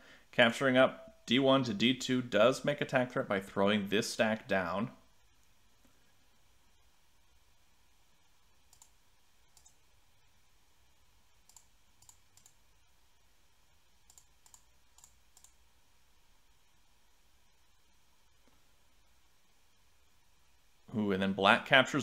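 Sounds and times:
computer mouse clicks: 8.7s - 9.8s, 11.4s - 12.6s, 14.0s - 15.6s.

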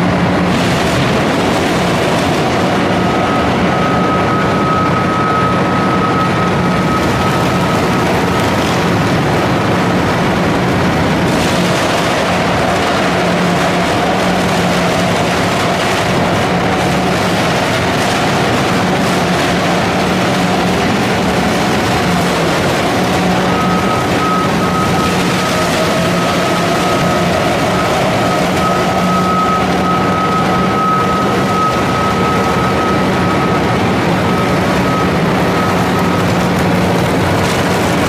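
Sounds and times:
shredder grinding wood: 0.0s - 4.8s, 7.0s - 38.0s
diesel engine drone: 0.0s - 38.0s
thin high whine: 11.3s - 38.0s.

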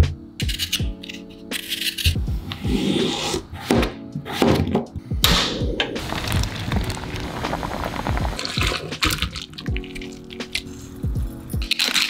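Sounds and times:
boiling water bubbling: 6.0s - 10.3s.

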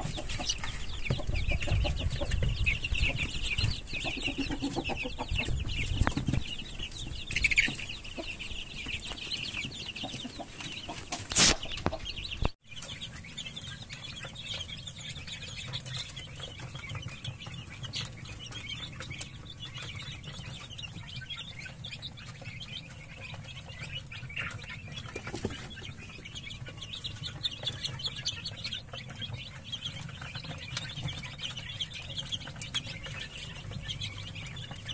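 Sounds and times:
chicks cheeping and clucking: 0.0s - 34.9s.

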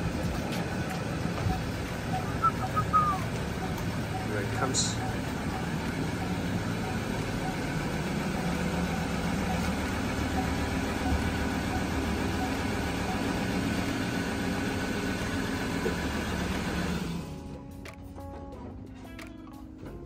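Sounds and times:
pickup engine idling: 0.0s - 17.6s.

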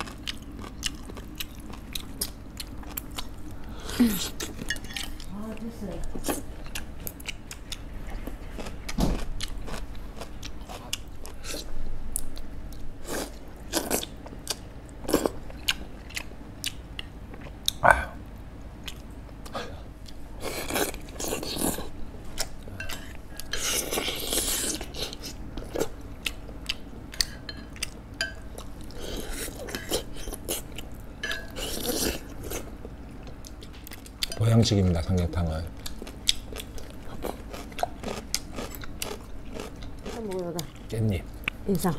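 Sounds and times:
wet chewing and smacking: 18.8s - 21.8s, 35.8s - 41.6s.

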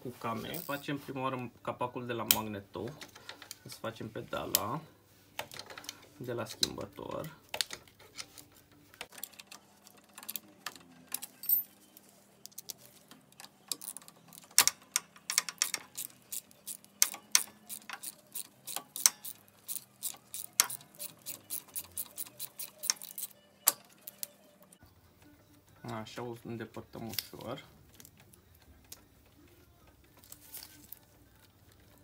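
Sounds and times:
ratchet wrench clicking: 13.7s - 24.2s.

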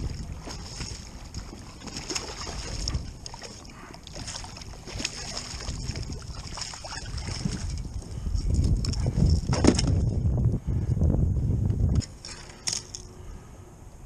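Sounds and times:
water splashing against kayak: 0.0s - 10.1s
wind rumble on microphone: 0.0s - 14.0s.

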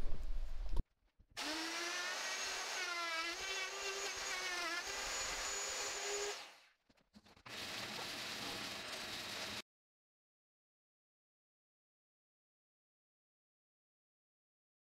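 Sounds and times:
electric router whining: 1.4s - 6.5s.

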